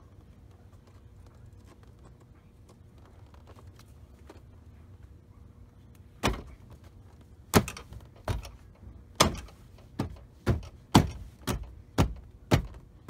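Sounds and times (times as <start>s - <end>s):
hand knocking on door panel: 9.2s - 12.8s.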